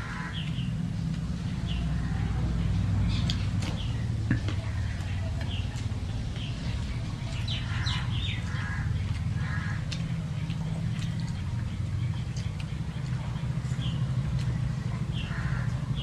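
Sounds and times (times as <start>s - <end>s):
steady low hum: 0.0s - 16.0s
chewing: 3.2s - 15.9s.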